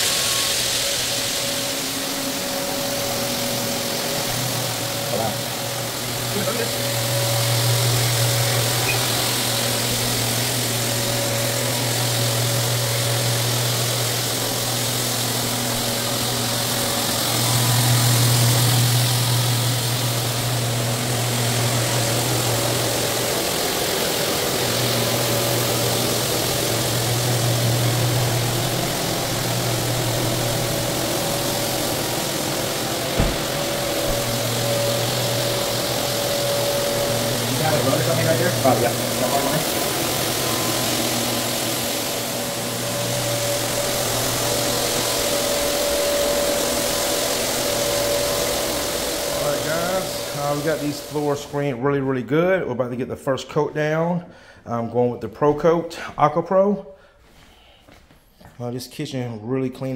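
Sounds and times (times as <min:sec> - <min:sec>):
floor buffer motor humming: 0:00.0 - 0:58.5
vacuum hiss: 0:00.0 - 0:59.9
knock: 0:33.2 - 0:34.4.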